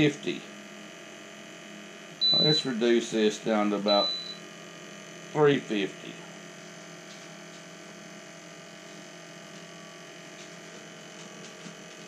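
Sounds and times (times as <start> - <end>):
fan humming: 0.0 - 12.0.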